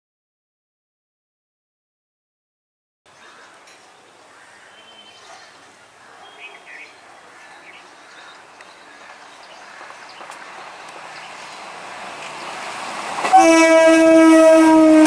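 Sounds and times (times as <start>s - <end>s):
train running on rails: 7.0s - 15.0s
train horn blast: 13.2s - 15.0s.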